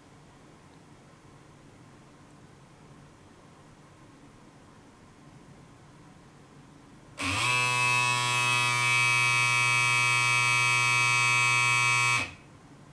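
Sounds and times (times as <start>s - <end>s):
electric shaver buzzing: 7.2s - 12.4s.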